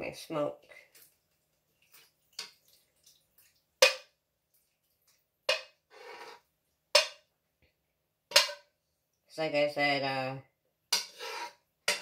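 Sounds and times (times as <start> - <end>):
kitchenware clinking: 3.8 - 4.1, 8.3 - 8.7, 11.0 - 12.0.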